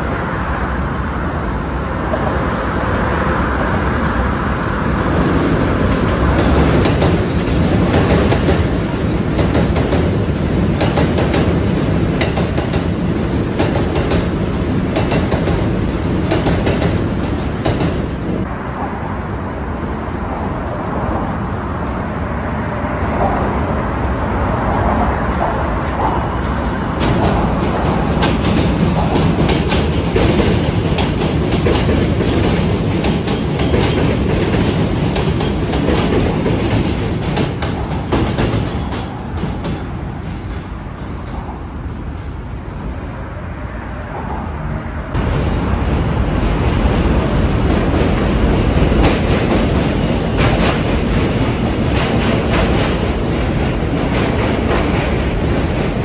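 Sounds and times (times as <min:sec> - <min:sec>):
subway train wheels rumbling: 0:00.0 - 0:56.0
wheels clacking over rail joints: 0:05.8 - 0:18.5, 0:24.7 - 0:42.3, 0:47.1 - 0:56.0.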